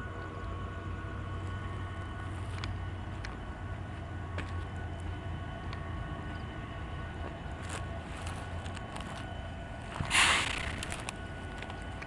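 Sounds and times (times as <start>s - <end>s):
diesel locomotive engine rumble: 0.0s - 12.0s.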